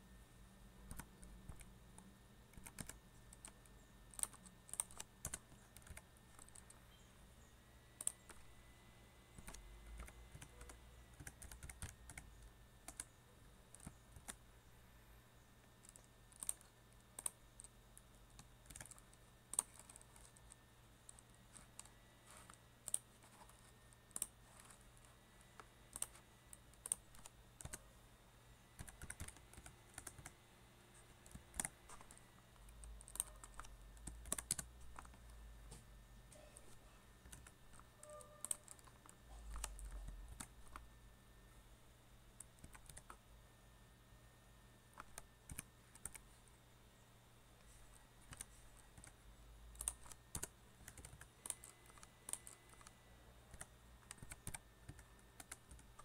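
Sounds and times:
faint keyboard typing: 0:00.0 - 0:08.6, 0:09.2 - 0:14.6, 0:15.5 - 0:28.0, 0:28.6 - 0:41.0, 0:42.3 - 0:43.3, 0:44.9 - 0:46.7, 0:47.6 - 0:56.0.

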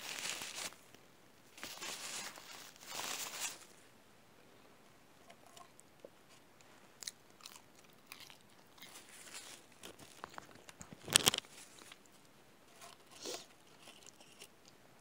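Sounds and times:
paper wrapper crinkling: 0:00.0 - 0:00.9, 0:01.6 - 0:03.8, 0:08.8 - 0:12.1
chewing and biting fries: 0:07.0 - 0:10.4.

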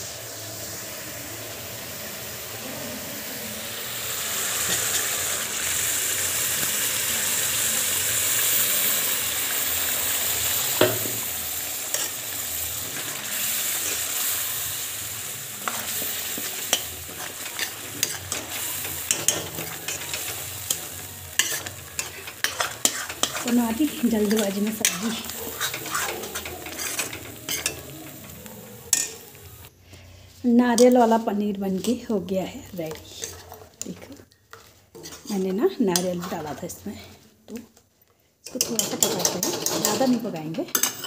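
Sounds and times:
curry sizzling in pan: 0:00.0 - 0:37.8, 0:38.4 - 0:41.0
spatula scraping pan: 0:15.5 - 0:29.6, 0:31.7 - 0:37.2, 0:38.5 - 0:41.0.

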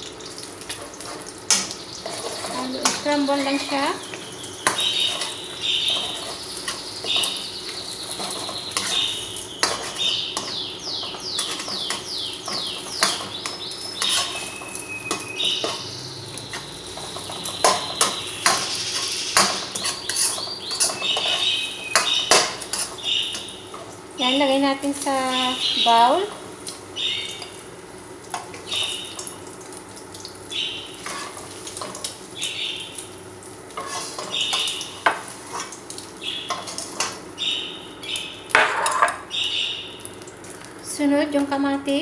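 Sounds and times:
metal ladle scraping a wok: 0:14.0 - 0:14.6, 0:18.4 - 0:21.4, 0:31.0 - 0:31.4, 0:33.8 - 0:34.3.

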